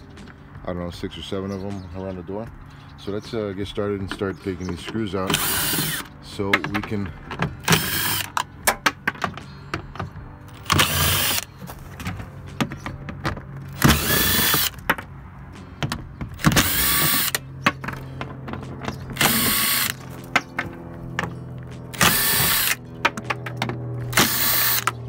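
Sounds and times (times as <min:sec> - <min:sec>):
power drill backing out screws: 0:04.8 - 0:08.5, 0:09.3 - 0:12.1, 0:13.7 - 0:14.8, 0:16.3 - 0:17.4, 0:19.1 - 0:20.0, 0:22.0 - 0:22.8, 0:24.1 - 0:25.0.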